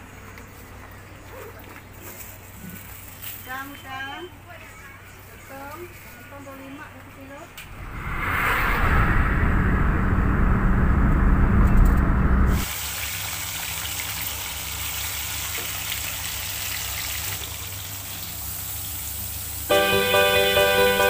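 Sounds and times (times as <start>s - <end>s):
road noise inside a car: 10.0s - 13.1s
fish deep-frying in oil: 12.6s - 19.8s.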